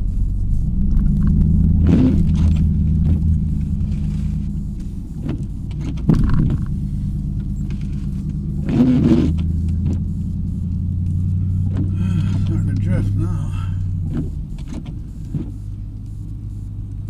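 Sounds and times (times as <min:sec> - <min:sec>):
truck engine running: 0:00.0 - 0:17.0
knocks and rattles: 0:05.2 - 0:06.8.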